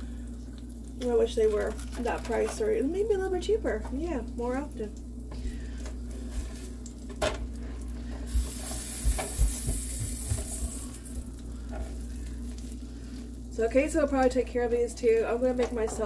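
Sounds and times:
pancakes sizzling in frying pan: 0:04.9 - 0:13.5.

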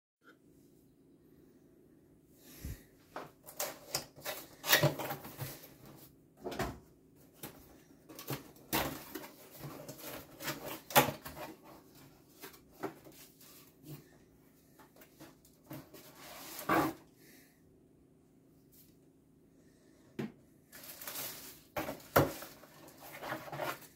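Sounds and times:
cardboard scraping and rustling: 0:07.3 - 0:14.1, 0:14.9 - 0:17.1, 0:20.8 - 0:23.9
plastic packaging rustling: 0:20.7 - 0:23.9.

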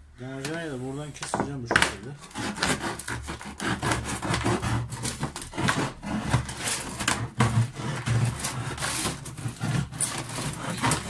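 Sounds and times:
knife cutting thin plastic: 0:01.8 - 0:11.0.

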